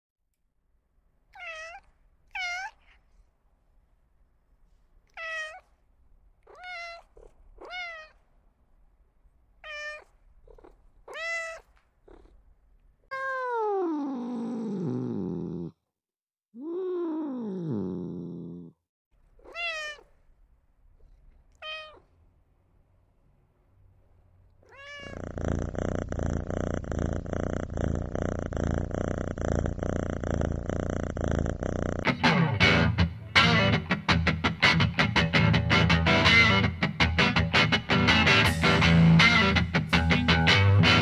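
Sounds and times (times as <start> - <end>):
cat meowing: 1.3 - 3.1, 5.0 - 5.8, 6.4 - 8.3, 9.6 - 12.3, 13.1 - 14.8, 16.6 - 17.7, 19.4 - 20.3, 21.0 - 22.2, 24.6 - 25.4.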